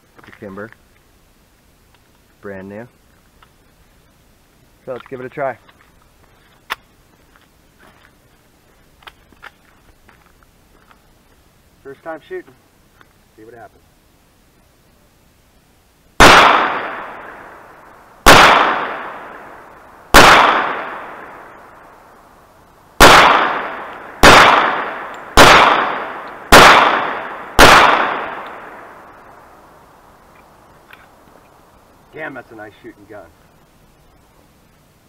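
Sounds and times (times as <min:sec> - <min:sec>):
pistol shots: 0:16.2 - 0:21.8, 0:23.0 - 0:29.4.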